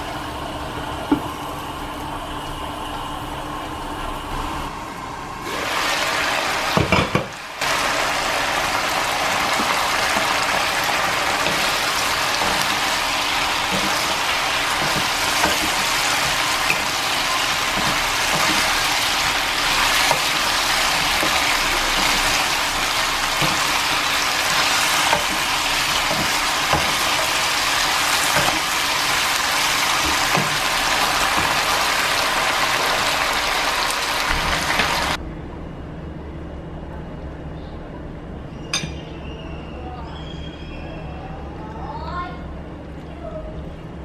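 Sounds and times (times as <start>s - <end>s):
sauce sizzling and bubbling: 5.4s - 35.2s.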